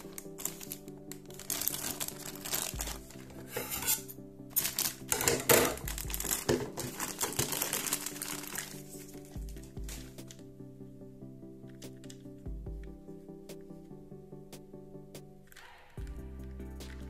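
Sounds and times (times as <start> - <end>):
plastic bag crinkling: 0.0 - 4.0, 4.6 - 10.4
background music: 0.0 - 17.0.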